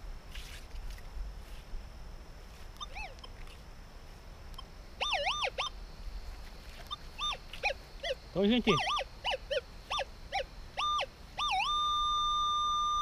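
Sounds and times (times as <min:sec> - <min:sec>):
animal whistled calls: 0:02.8 - 0:03.2, 0:05.0 - 0:05.7, 0:06.9 - 0:13.0.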